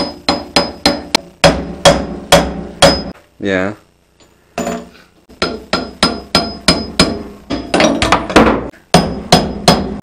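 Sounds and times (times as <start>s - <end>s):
hammer striking metal drift: 0.0s - 3.2s, 5.4s - 8.2s, 8.9s - 10.0s.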